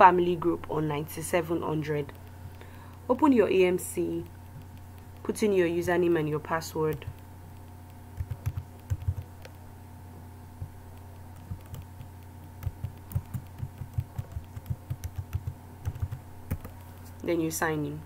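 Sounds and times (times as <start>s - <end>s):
steady low hum: 0.0s - 18.0s
keyboard keystrokes: 6.9s - 9.6s, 11.0s - 16.8s.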